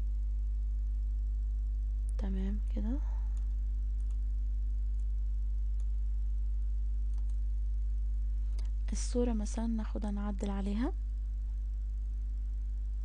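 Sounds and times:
low electrical hum: 0:00.0 - 0:13.0
computer mouse clicks: 0:07.1 - 0:07.4.

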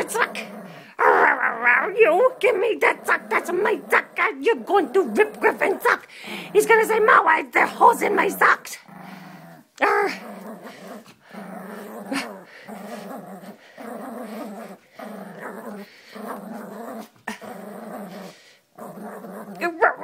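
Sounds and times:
puppy growling: 0:00.0 - 0:20.0.

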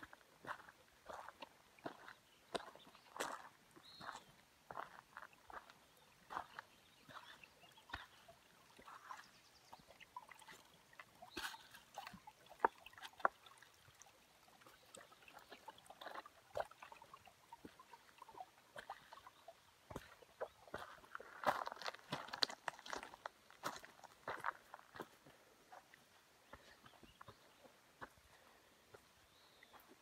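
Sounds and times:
footsteps on gravel trail: 0:00.0 - 0:08.3, 0:19.9 - 0:30.0.

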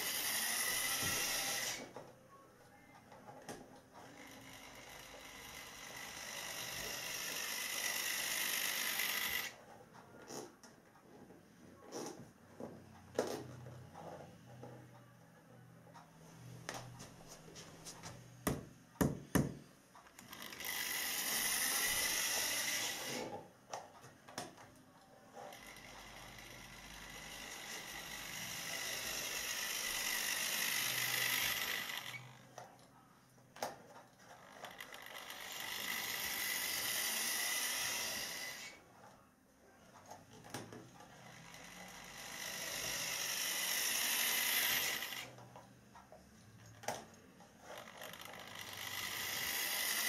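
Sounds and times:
model electric motor whirring: 0:00.0 - 0:02.0, 0:03.9 - 0:09.6, 0:20.2 - 0:23.4, 0:25.3 - 0:32.6, 0:34.3 - 0:38.9, 0:41.0 - 0:45.4, 0:47.6 - 0:50.0.

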